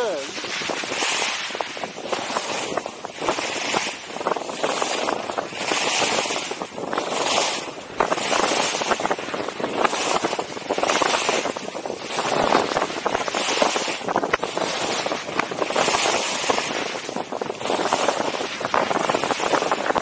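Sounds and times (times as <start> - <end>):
skis scraping on packed snow: 0.0 - 10.2.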